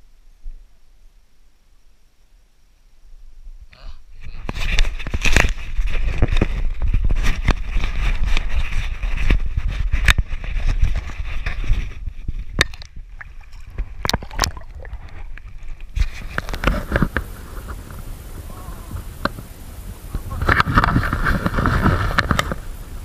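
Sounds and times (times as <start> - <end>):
wind buffeting microphone: 4.2 - 23.0
camera handling rubbing and clicking: 4.4 - 12.9
water sloshing: 12.6 - 22.6.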